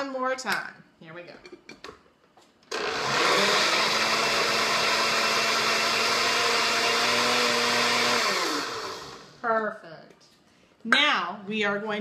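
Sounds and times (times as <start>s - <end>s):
blender motor whine: 2.7s - 9.4s
smoothie churning: 2.7s - 9.4s
motor spinning down: 6.1s - 9.4s.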